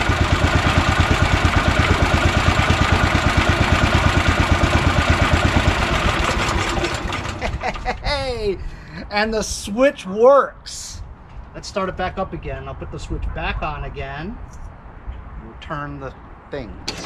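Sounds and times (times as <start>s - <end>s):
engine running: 0.0s - 9.1s.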